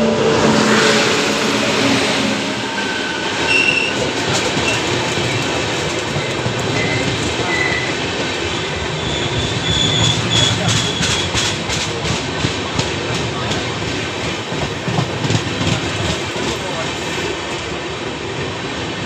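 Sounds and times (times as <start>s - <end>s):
train wheels rumbling on track: 0.0s - 19.0s
wheel squeals: 6.7s - 8.0s, 8.9s - 11.4s.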